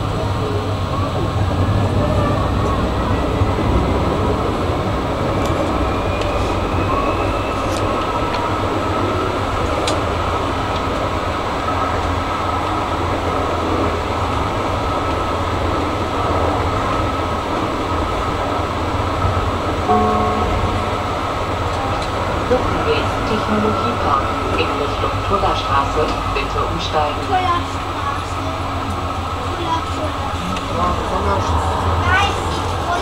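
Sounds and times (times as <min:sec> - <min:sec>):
tram rolling rumble: 0:00.0 - 0:33.0
brief tone: 0:19.9 - 0:21.4.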